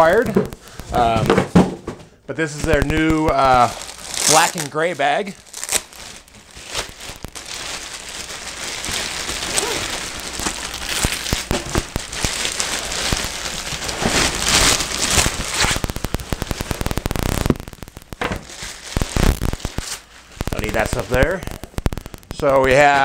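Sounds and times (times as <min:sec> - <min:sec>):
plastic wrapping crinkling: 0:00.0 - 0:23.0.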